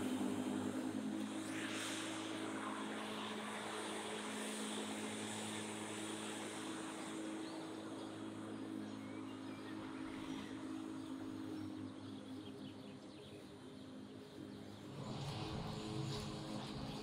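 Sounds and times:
lawn mower cutting grass: 0:00.0 - 0:08.9, 0:13.9 - 0:17.0.

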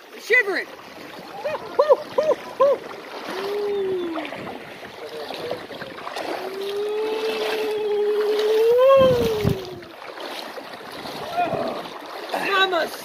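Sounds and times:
shallow river rushing: 0:00.0 - 0:13.0
person moaning: 0:03.3 - 0:04.2, 0:06.4 - 0:09.9
person humming: 0:03.3 - 0:04.3, 0:06.4 - 0:09.9.

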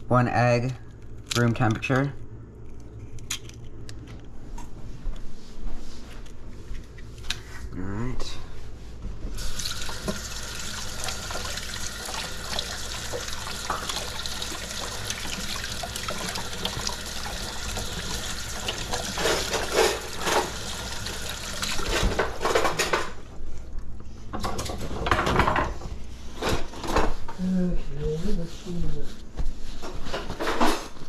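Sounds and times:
faucet water running: 0:09.4 - 0:22.4.

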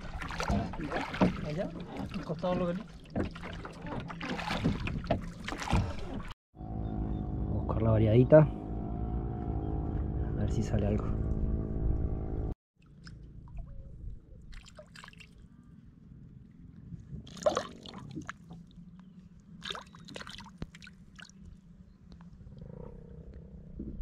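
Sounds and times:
fish splashing in water: 0:00.0 - 0:02.3, 0:03.0 - 0:06.4, 0:19.6 - 0:21.4
low steady rumble: 0:06.6 - 0:14.5.

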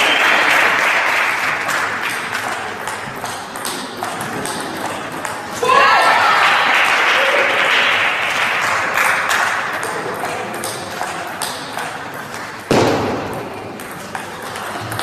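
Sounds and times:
table tennis balls clicking: 0:01.6 - 0:05.6, 0:09.6 - 0:15.0
loud thump: 0:12.7 - 0:13.6.

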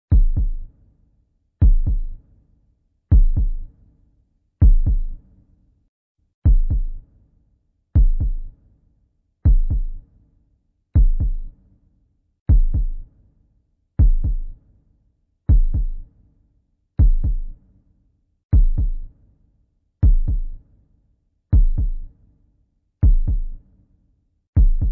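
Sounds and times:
heartbeat thumps: 0:00.1 - 0:00.6, 0:01.6 - 0:02.1, 0:03.1 - 0:03.6, 0:04.6 - 0:05.2, 0:06.4 - 0:07.0, 0:08.0 - 0:08.5, 0:09.5 - 0:10.0, 0:11.0 - 0:11.5, 0:12.5 - 0:13.0, 0:14.0 - 0:14.5, 0:15.5 - 0:16.0, 0:17.0 - 0:17.5, 0:18.6 - 0:19.0, 0:20.0 - 0:20.6, 0:21.6 - 0:22.0, 0:23.0 - 0:23.6, 0:24.6 - 0:24.9.

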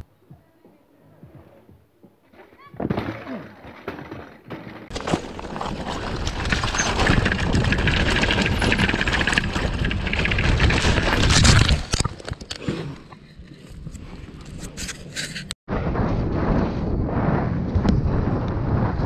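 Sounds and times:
bike crash: 0:02.8 - 0:12.2
mountain bike rattling on dirt trail: 0:03.6 - 0:12.4.

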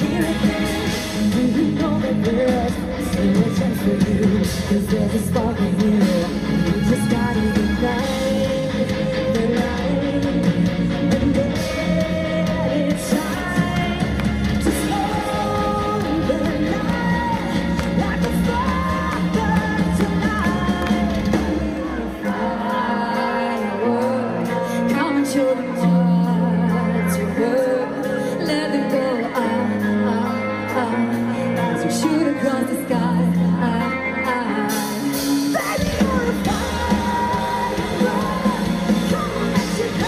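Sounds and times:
women singing over rock band: 0:00.0 - 0:40.0.

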